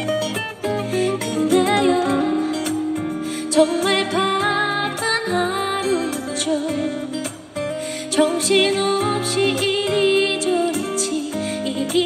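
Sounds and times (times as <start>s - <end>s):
acoustic guitar: 0.0s - 12.0s
woman singing into a microphone: 0.6s - 12.0s.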